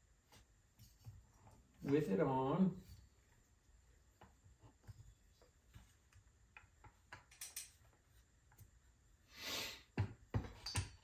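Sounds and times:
metal parts clicking and tapping: 6.1s - 8.0s, 10.4s - 11.0s.

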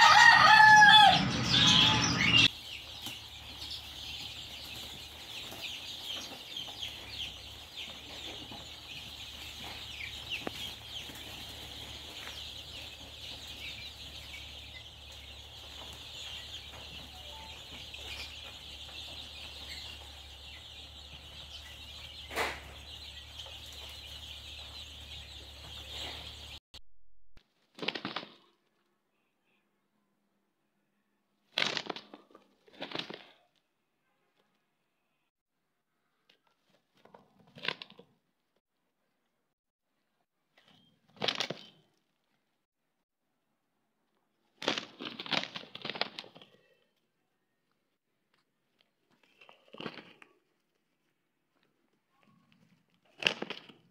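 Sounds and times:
chicks peeping: 0.0s - 26.6s
roosters flapping wings: 27.7s - 28.5s, 31.6s - 33.4s, 44.6s - 46.4s, 53.1s - 53.9s.

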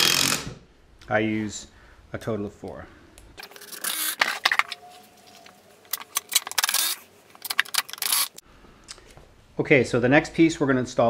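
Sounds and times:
screws and tools clinking on wood: 5.9s - 8.4s.

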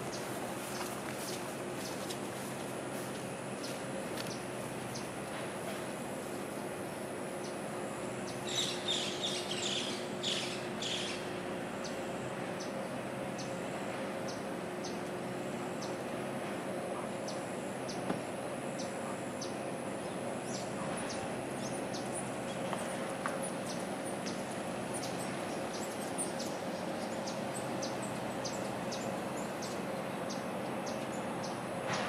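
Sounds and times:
birds chirping: 0.0s - 32.0s
ship machinery hum: 0.0s - 32.0s.

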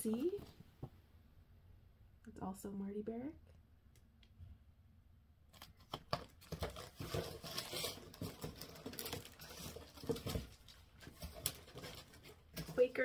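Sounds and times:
plastic packaging crinkling: 5.5s - 13.0s.

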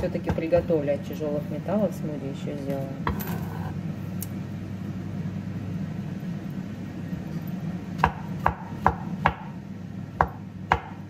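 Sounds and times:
steady low hum: 0.0s - 11.0s
knife chopping on cutting board: 8.0s - 9.6s, 10.2s - 11.0s.

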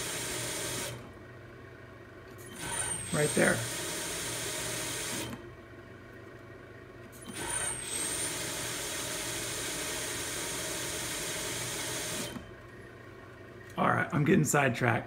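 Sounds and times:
spindle motor running: 0.0s - 1.1s, 2.4s - 5.5s, 7.1s - 12.8s
short high motor whine: 2.5s - 5.4s.

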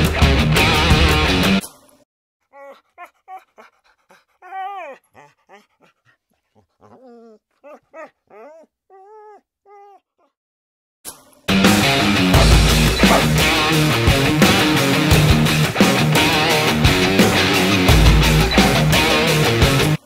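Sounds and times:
dog whimpering and yipping: 2.6s - 10.0s.

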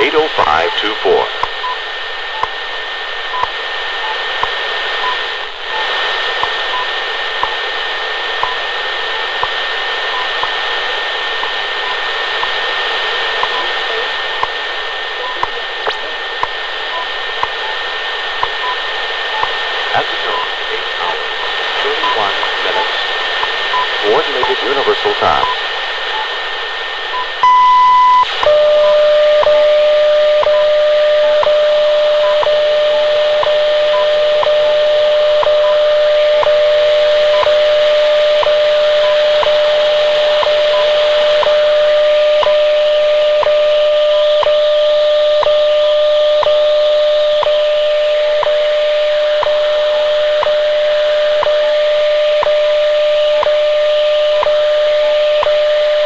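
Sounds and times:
radio static hiss: 0.0s - 56.0s
faint high beeps: 27.1s - 39.6s.

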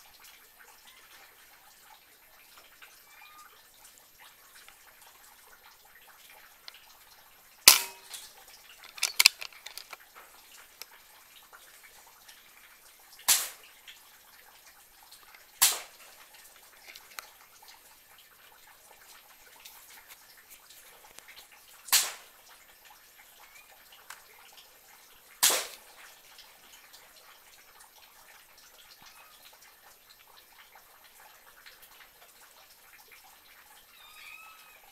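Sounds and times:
small clicks: 7.7s - 11.0s, 16.5s - 17.3s.

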